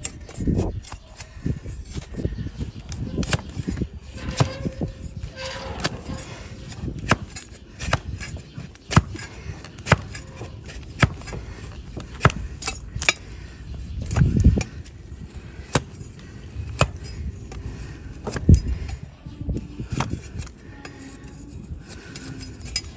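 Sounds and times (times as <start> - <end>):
knife shaving hoof with clicks: 0.0 - 2.2, 2.8 - 13.3, 19.9 - 22.9.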